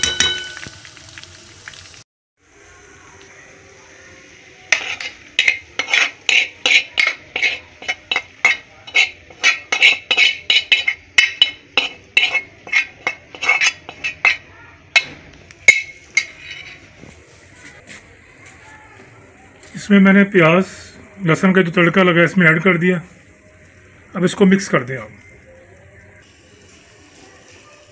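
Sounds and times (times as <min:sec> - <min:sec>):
metal spoon scraping frying pan: 0:04.7 - 0:17.1.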